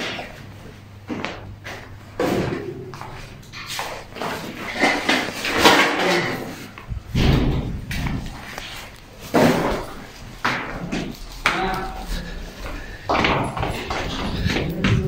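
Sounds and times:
knocks and thuds of doors: 0:06.9 - 0:08.2.

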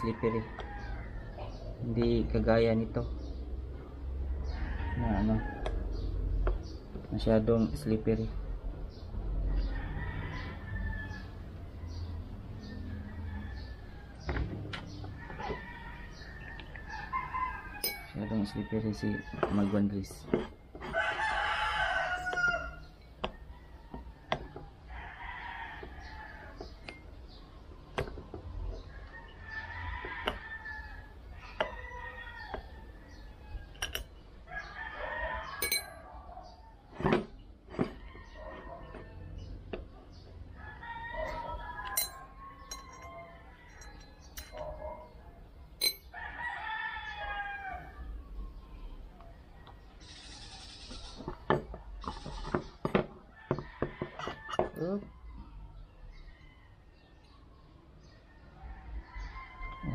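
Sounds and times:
roosters crowing: 0:00.0 - 0:02.2, 0:03.6 - 0:59.9
sharp metal clinks: 0:17.8 - 0:18.2, 0:35.6 - 0:36.0, 0:41.8 - 0:44.8, 0:45.8 - 0:46.1.

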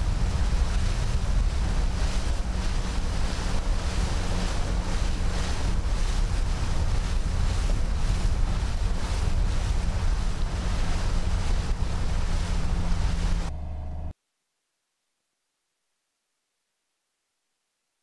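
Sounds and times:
wind buffeting microphone: 0:00.0 - 0:13.5
boat moving over water: 0:00.0 - 0:14.1.

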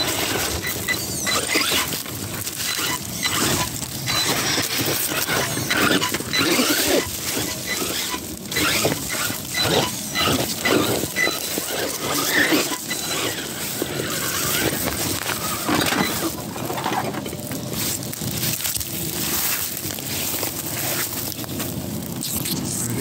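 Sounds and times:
electric drivetrain whining: 0:00.0 - 0:23.0
tyres scrabbling on rock: 0:00.0 - 0:23.0.

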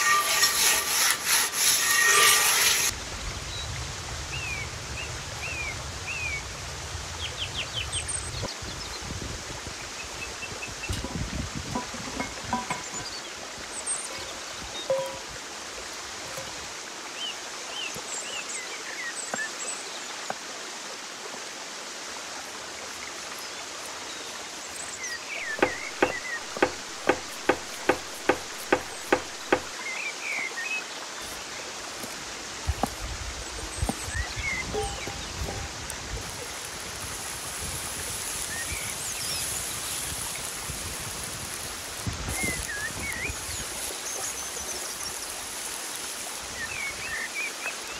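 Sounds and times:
butter sizzling in skillet: 0:00.0 - 0:03.0, 0:22.9 - 0:30.5, 0:31.2 - 0:47.5
running stream: 0:00.0 - 0:47.9
birds chirping: 0:11.8 - 0:15.3, 0:24.1 - 0:32.8
knife chopping on wooden board: 0:25.6 - 0:29.7.

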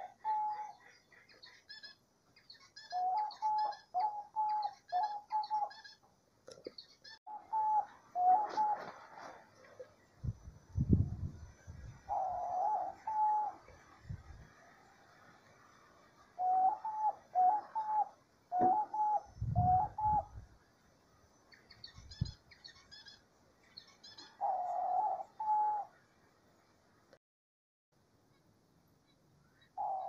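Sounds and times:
dove cooing: 0:00.0 - 0:00.8, 0:02.8 - 0:05.9, 0:07.3 - 0:09.4, 0:12.1 - 0:13.6, 0:16.4 - 0:20.4, 0:24.1 - 0:26.0, 0:29.8 - 0:30.0
small bird chirping: 0:00.0 - 0:08.8, 0:21.3 - 0:26.0.

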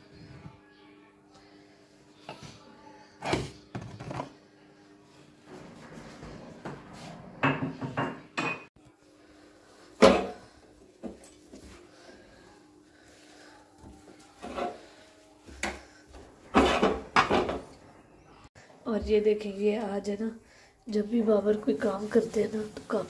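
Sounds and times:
dishes and cookware clattering: 0:07.4 - 0:08.7, 0:10.0 - 0:11.4, 0:16.5 - 0:17.8.

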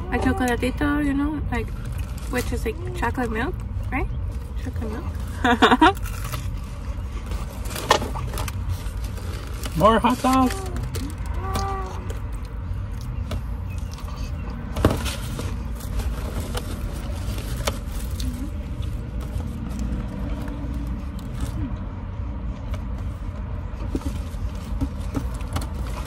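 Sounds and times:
paper wrapper crinkling: 0:04.2 - 0:12.5.

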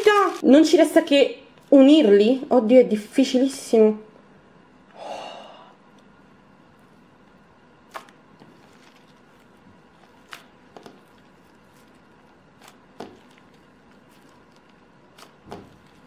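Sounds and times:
hands squishing slime: 0:07.8 - 0:16.0.

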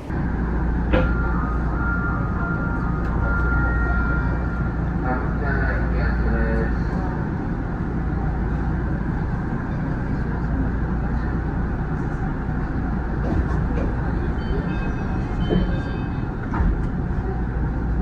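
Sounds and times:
train low hum and rumble: 0:00.0 - 0:18.0.

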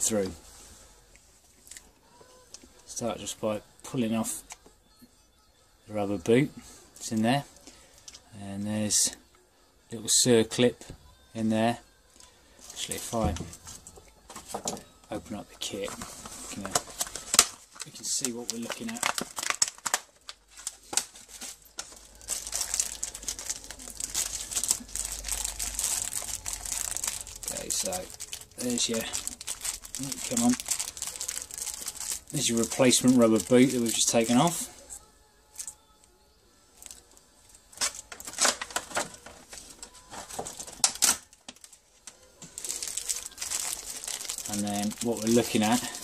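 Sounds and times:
plastic bag crinkling: 0:15.6 - 0:34.7, 0:36.8 - 0:37.1, 0:37.7 - 0:46.0.

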